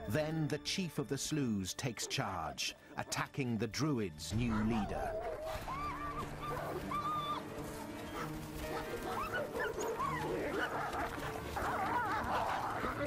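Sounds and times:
wolves yelping and whining: 4.4s - 13.0s.

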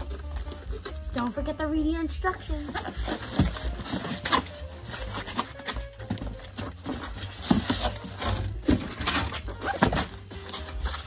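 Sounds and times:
foam scraping and squeaking on cardboard: 0.0s - 11.0s.

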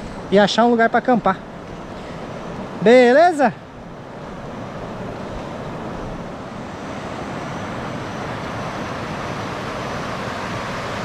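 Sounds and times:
road noise: 0.0s - 11.0s
wind noise: 3.5s - 11.0s.

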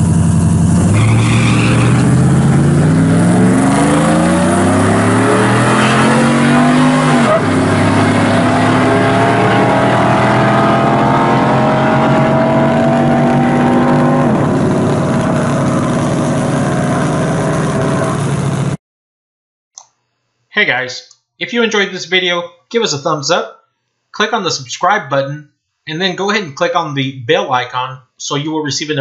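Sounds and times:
racing engines at full throttle: 0.0s - 18.8s.

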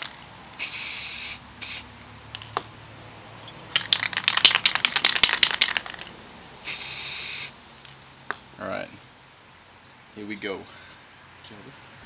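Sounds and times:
spray can rattling when shaken: 0.0s - 1.8s, 3.7s - 7.5s
spray can hissing: 0.6s - 1.9s, 6.6s - 7.6s.

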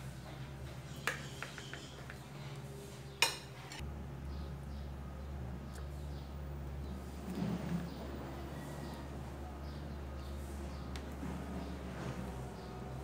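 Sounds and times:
knife and dishes clinking: 3.2s - 3.8s.

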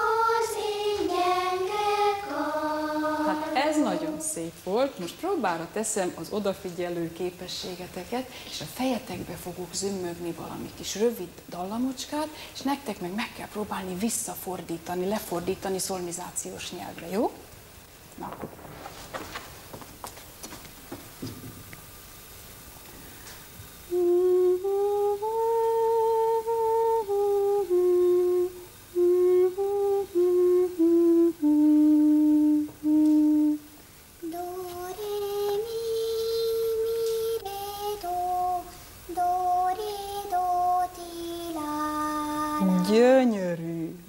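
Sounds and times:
child singing: 0.0s - 4.3s, 34.2s - 43.0s
woman humming a melody: 23.9s - 37.4s, 41.7s - 44.0s.

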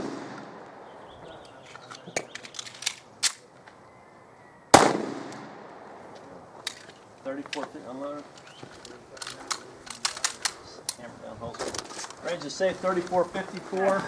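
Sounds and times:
handgun shot with echo: 0.0s - 0.7s, 4.7s - 5.6s.

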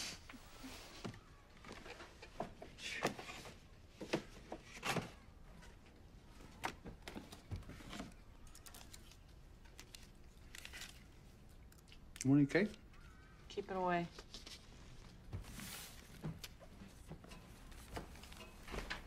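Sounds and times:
boxes and papers being handled: 0.3s - 11.8s, 14.0s - 19.0s.

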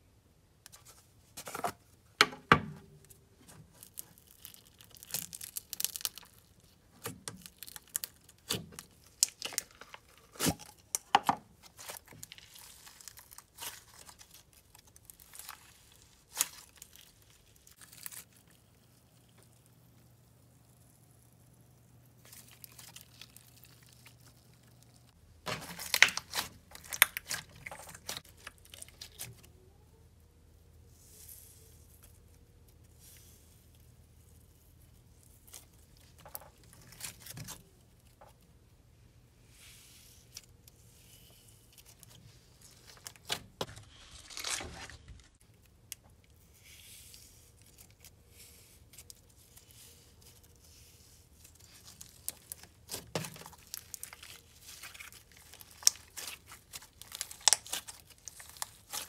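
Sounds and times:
slime crackling and popping: 3.5s - 29.4s, 51.4s - 59.0s.

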